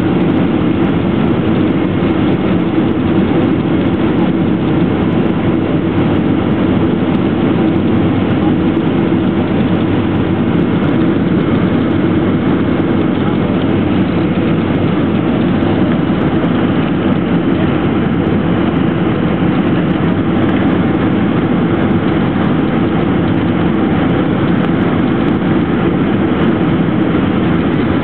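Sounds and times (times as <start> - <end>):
airplane engine and airflow in cabin: 0.0 - 28.0.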